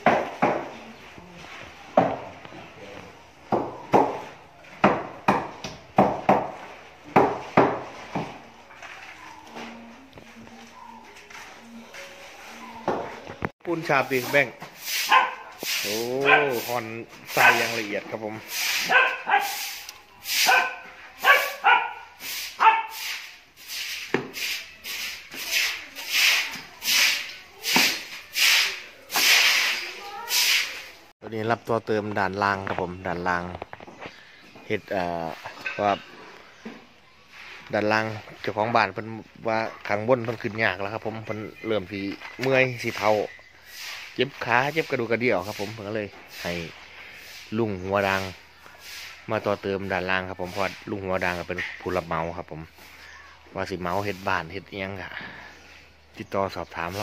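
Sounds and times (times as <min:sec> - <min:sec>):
hammer knocking on concrete wall: 0:04.8 - 0:08.4
hoe scraping cement mix: 0:13.4 - 0:31.0, 0:41.8 - 0:55.6
dog barking: 0:15.1 - 0:15.6, 0:16.2 - 0:16.7, 0:17.3 - 0:17.8, 0:18.8 - 0:19.8, 0:20.4 - 0:23.0.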